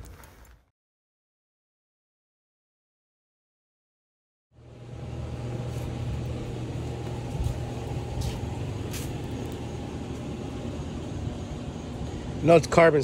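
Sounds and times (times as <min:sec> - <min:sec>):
low mechanical hum: 0:04.5 - 0:13.0.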